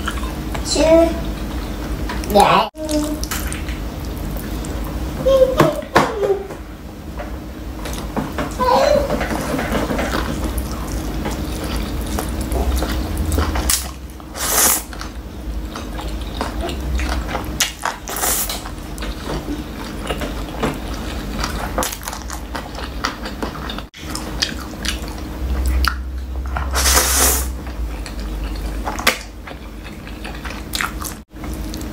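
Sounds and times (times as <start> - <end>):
wet chewing and smacking: 0.0 - 5.0, 9.7 - 31.9
slurping noodles: 10.6 - 15.0, 18.0 - 18.6, 26.7 - 27.6.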